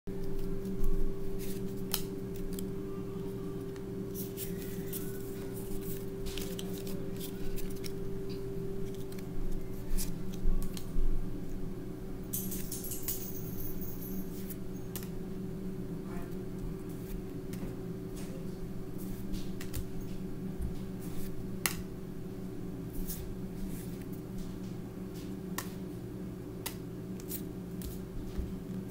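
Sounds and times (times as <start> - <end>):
trading cards clicking and rustling: 0.2 - 2.8, 3.6 - 10.9, 12.4 - 15.2
foil wrapper crinkle: 4.1 - 8.0.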